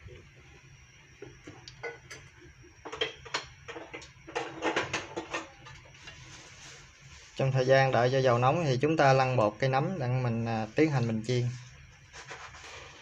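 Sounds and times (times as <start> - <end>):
hot oil ticking and popping: 1.2 - 5.9.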